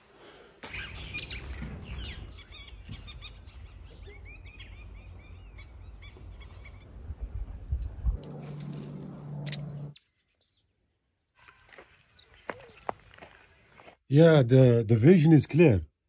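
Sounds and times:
birds chirping rapidly: 0.6 - 7.6, 9.3 - 13.9.

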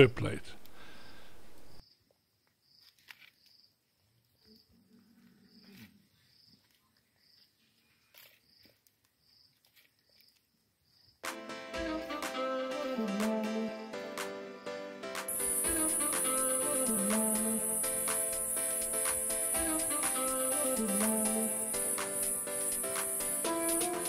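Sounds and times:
music: 11.2 - 24.0
high insect chirp: 15.3 - 24.0.

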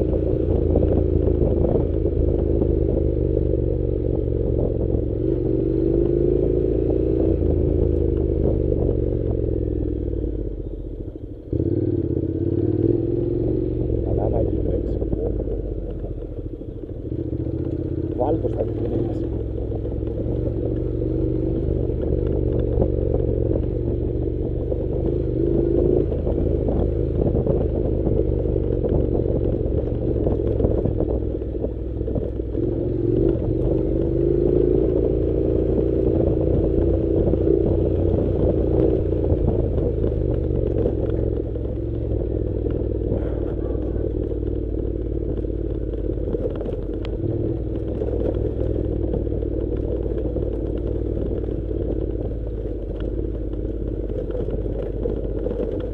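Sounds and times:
motorcycle engine running: 0.0 - 55.9
motorcycle rattling over stones: 13.7 - 55.9.

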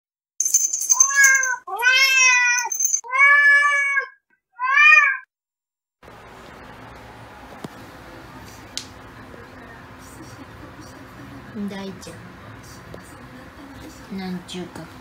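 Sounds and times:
cat meowing: 1.0 - 5.3.

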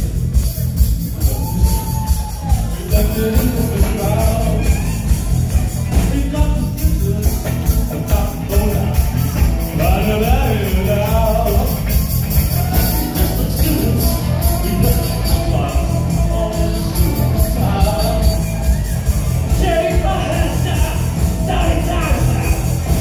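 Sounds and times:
live rock band playing: 0.0 - 23.0
person singing into microphone: 1.5 - 5.3, 5.9 - 11.9, 12.6 - 18.8.

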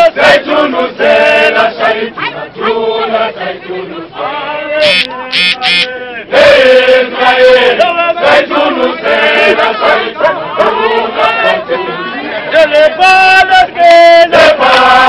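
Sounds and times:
crowd singing in chorus: 0.0 - 15.0
shrill high calls: 4.8 - 5.9.

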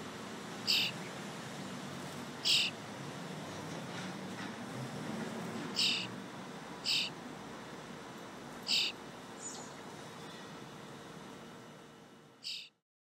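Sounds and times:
faint high bird chirp: 0.6 - 1.1, 2.4 - 2.7, 5.8 - 6.1, 6.8 - 7.1, 8.7 - 10.6, 12.4 - 12.8
young starling harsh calls: 0.6 - 1.1, 2.3 - 2.8, 5.7 - 6.2, 6.8 - 7.2, 8.6 - 9.7, 12.4 - 12.8.

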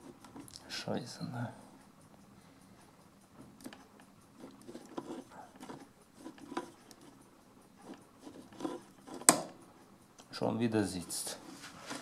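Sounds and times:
belt rubbing on wheel: 4.4 - 9.3.

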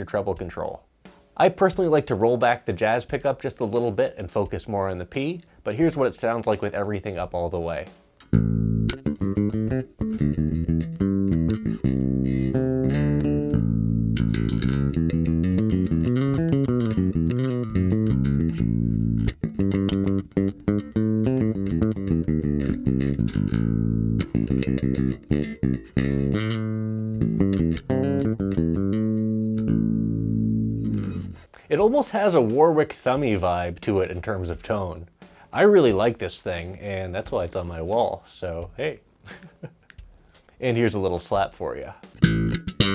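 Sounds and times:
electric bass plucked notes: 7.1 - 31.5, 42.1 - 42.9.

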